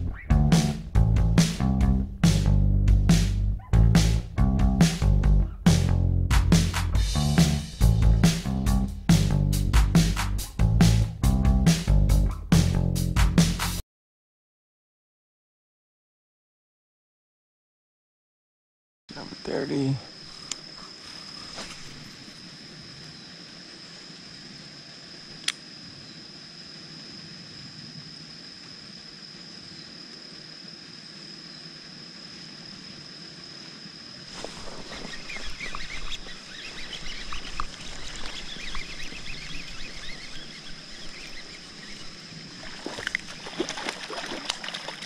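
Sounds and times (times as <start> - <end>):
high-pitched insect drone: 19.1 - 45.0
sharp click: 25.4 - 25.6
fish striking with a splash: 42.6 - 45.0.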